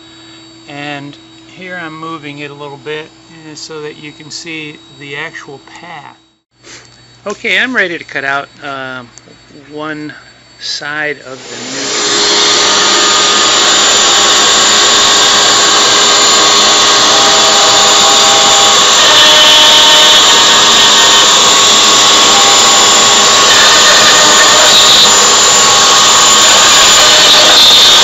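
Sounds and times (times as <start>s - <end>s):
router spindle whining: 11.3s - 28.0s.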